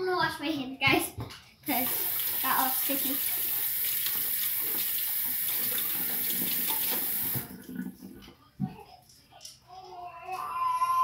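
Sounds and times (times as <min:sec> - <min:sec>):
tap water running into a sink: 0:01.7 - 0:07.8.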